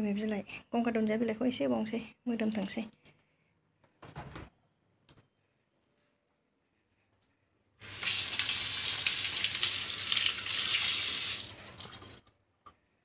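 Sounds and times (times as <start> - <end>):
tap water running into sink: 7.8 - 12.2.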